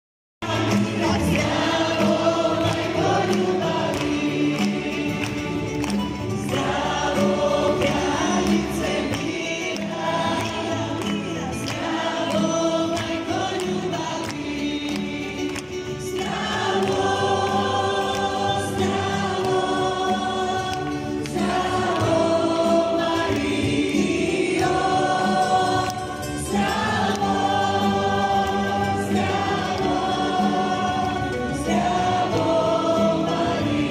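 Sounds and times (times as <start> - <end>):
congregation singing: 0.4 - 33.9
live band playing: 0.4 - 33.9.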